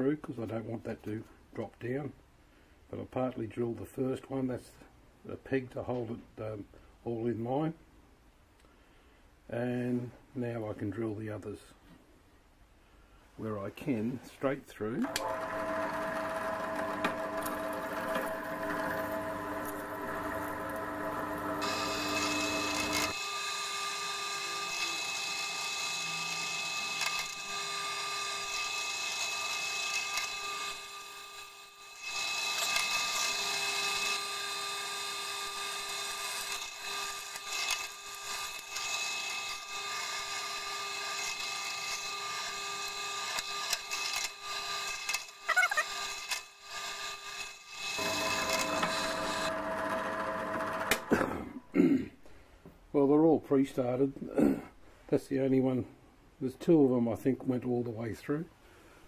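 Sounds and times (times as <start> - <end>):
drill press motor whine: 15.0 - 51.2
drill bit cutting metal: 15.1 - 51.1.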